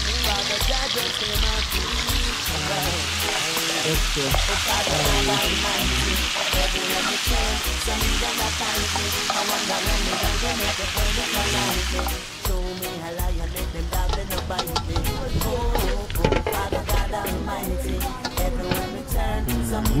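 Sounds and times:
vegetables sizzling in skillet: 0:00.0 - 0:19.1
background music with bass beat: 0:00.0 - 0:20.0
spoon stirring: 0:02.8 - 0:12.2.

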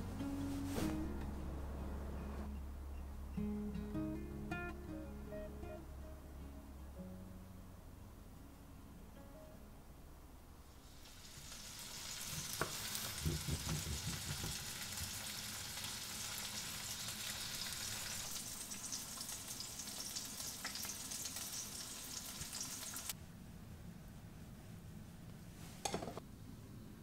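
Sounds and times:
food sizzling in frying pan: 0:10.8 - 0:23.2.

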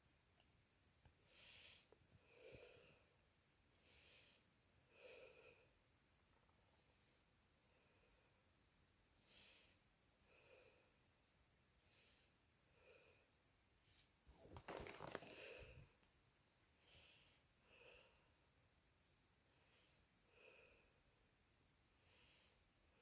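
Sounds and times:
faint breathing: 0:01.2 - 0:05.8, 0:06.4 - 0:08.6, 0:09.2 - 0:11.1, 0:11.8 - 0:14.1, 0:16.7 - 0:18.4, 0:19.4 - 0:21.1, 0:22.0 - 0:23.0
cardboard box rustling: 0:14.4 - 0:15.4.

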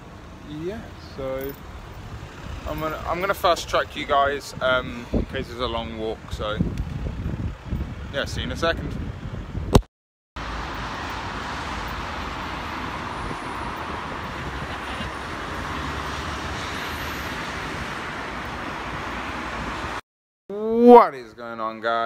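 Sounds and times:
road traffic noise: 0:00.0 - 0:09.8, 0:10.4 - 0:20.0.

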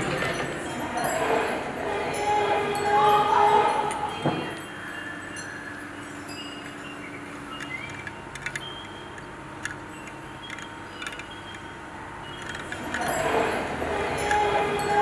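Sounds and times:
copper pieces clinking: 0:07.4 - 0:11.8.

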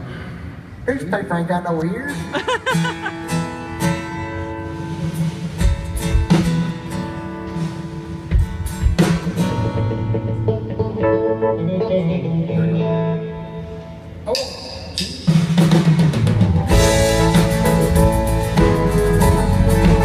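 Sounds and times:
live band playing: 0:02.4 - 0:20.0
strummed guitar chords: 0:02.6 - 0:14.0, 0:16.5 - 0:20.0
drum hits: 0:05.6 - 0:06.8, 0:08.3 - 0:09.6, 0:15.0 - 0:20.0.

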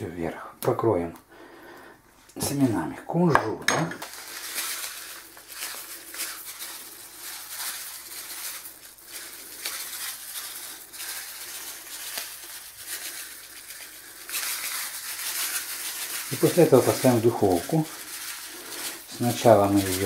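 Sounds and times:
seeds sprinkled onto batter: 0:04.0 - 0:20.0.

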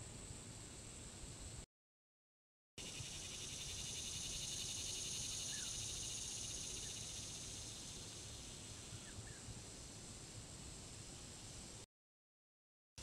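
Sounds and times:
insects chorus: 0:02.8 - 0:11.7.

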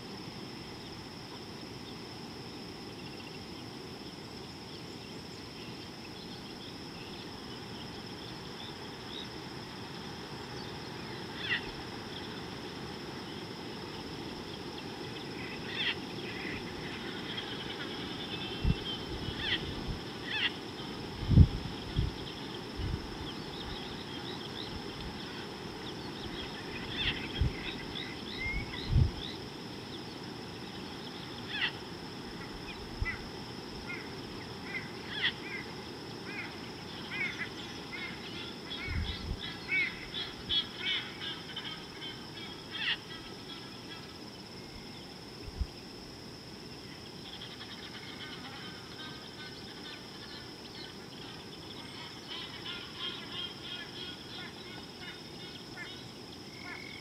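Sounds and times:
high-pitched insect drone: 0:00.0 - 0:57.0
birds chirping and calling: 0:23.2 - 0:29.4.

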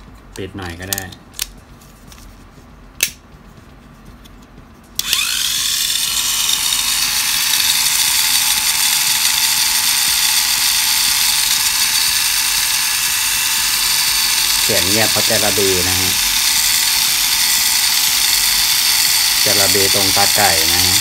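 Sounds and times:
small electric motor whine: 0:05.0 - 0:21.0.

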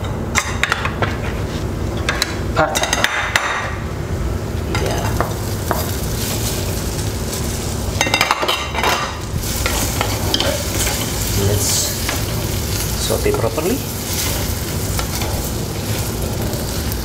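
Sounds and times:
meat sizzling in oil: 0:04.6 - 0:17.0.

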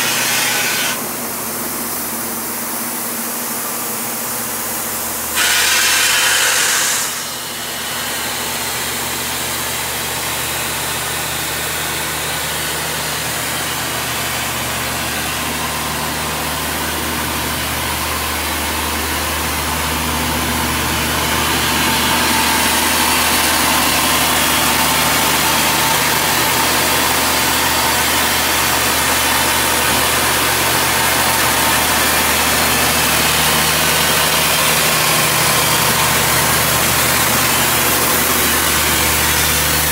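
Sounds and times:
short loud hiss: 0:05.4 - 0:07.4
diesel engine idling: 0:07.2 - 0:39.9.

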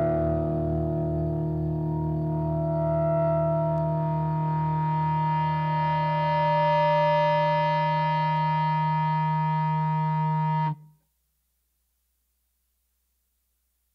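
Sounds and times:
distorted guitar and bass chord: 0:00.0 - 0:10.8.

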